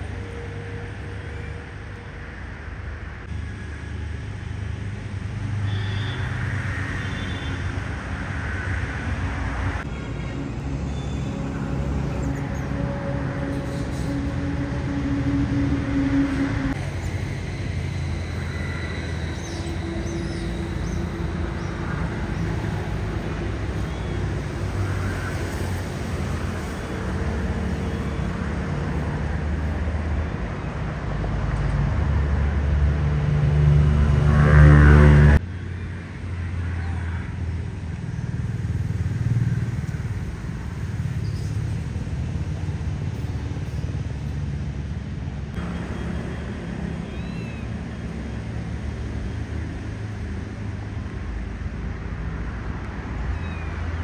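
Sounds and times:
motor vehicle rumble: 0.0s - 54.0s.

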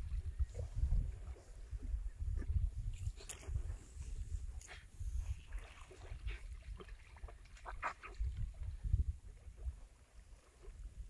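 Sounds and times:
wind buffeting microphone: 0.0s - 11.0s
river water splashing: 5.3s - 8.8s.

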